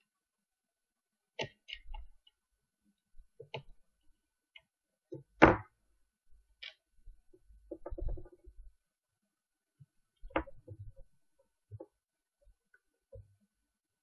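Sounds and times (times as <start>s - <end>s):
small clicks and knocks: 6.6s - 8.6s, 10.1s - 12.0s.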